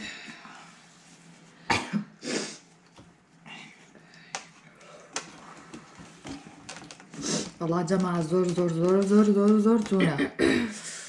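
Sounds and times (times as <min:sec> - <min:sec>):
person coughing: 0:01.7 - 0:02.3, 0:10.0 - 0:10.8
utensils clicking in cups: 0:05.2 - 0:10.2.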